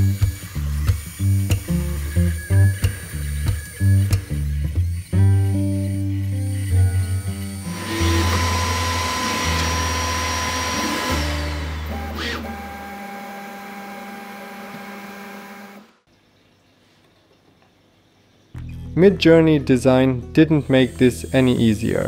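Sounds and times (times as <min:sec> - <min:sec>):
background music with low bass: 0:00.0 - 0:08.4, 0:18.6 - 0:22.0.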